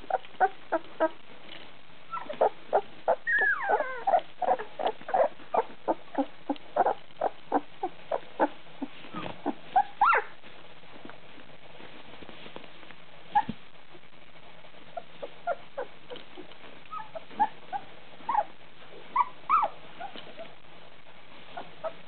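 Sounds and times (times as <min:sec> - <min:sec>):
puppies squeaking and whimpering: 0:00.0 - 0:01.2, 0:02.1 - 0:10.4, 0:14.9 - 0:20.6, 0:21.5 - 0:22.0.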